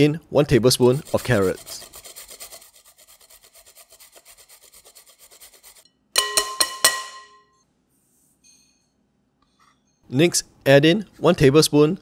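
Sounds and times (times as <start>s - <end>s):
carrot scraping on grater: 0.8s - 5.8s.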